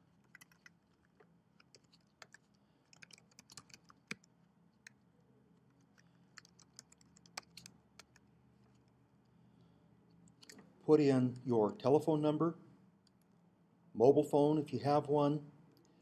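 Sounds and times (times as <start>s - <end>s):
keyboard typing clicks: 0.3s - 0.8s, 1.6s - 5.0s, 6.4s - 8.2s.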